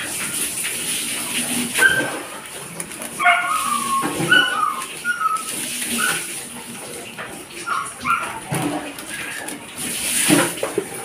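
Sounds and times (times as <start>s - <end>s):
dog whimpering and yipping: 1.8s - 2.2s, 3.2s - 6.3s, 7.6s - 8.5s.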